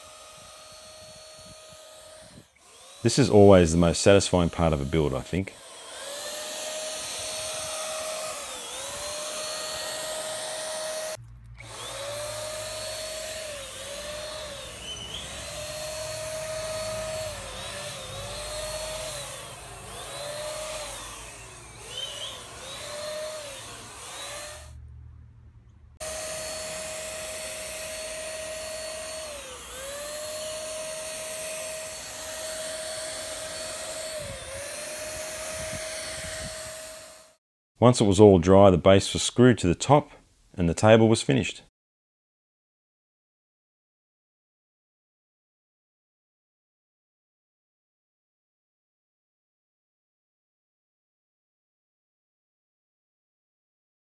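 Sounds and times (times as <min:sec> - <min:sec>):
electric paint spray gun whine: 0:00.0 - 0:24.8, 0:26.0 - 0:37.4.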